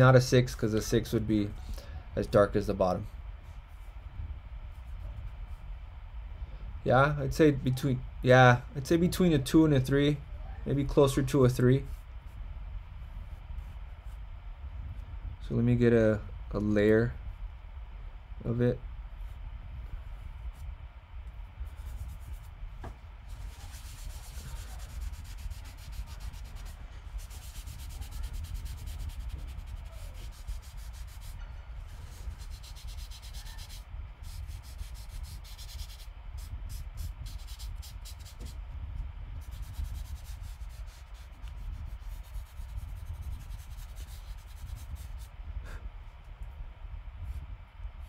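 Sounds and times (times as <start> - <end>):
low rumble: 11.4 - 33.1
charcoal scrubbing on paper: 21.7 - 22.5, 23.2 - 38.6, 39.4 - 45.3.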